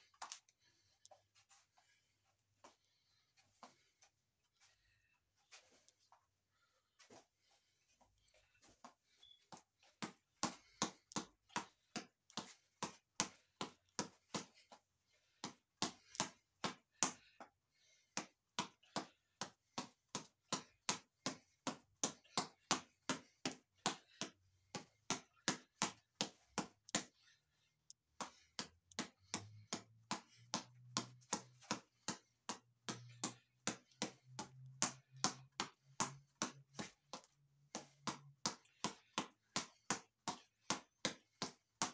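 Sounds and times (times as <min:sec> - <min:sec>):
punches tapping reflex ball: 0:10.0 - 0:14.7, 0:15.3 - 0:27.3, 0:28.2 - 0:41.9.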